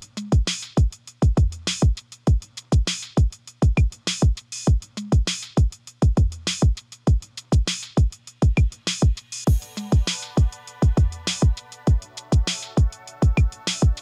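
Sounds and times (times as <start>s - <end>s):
electronic music with drum machine: 6.0s - 14.0s.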